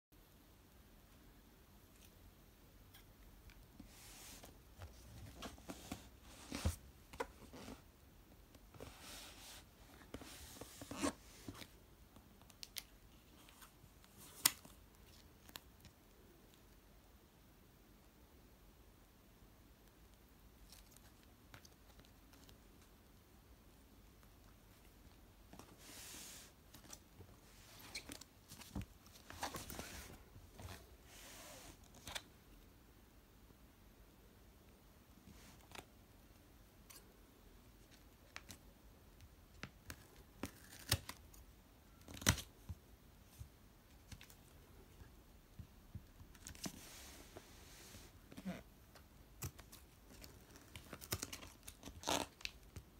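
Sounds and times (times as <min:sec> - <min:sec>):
cardboard rustling: 0:25.6 - 0:32.2.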